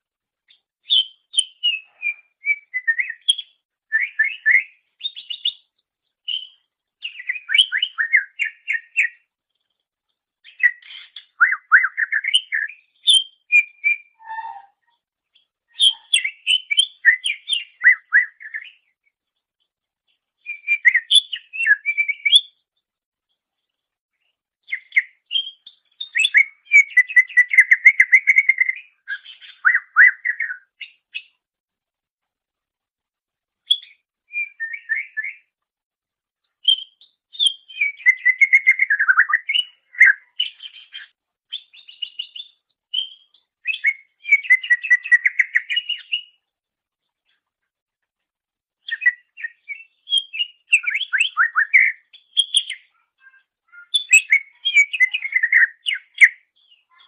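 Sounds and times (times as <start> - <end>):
bird singing whistled notes: 0.5 - 9.3, 10.4 - 15.0, 15.7 - 19.0, 20.4 - 22.6, 24.7 - 31.3, 33.7 - 35.5, 36.6 - 46.4, 48.8 - 57.0.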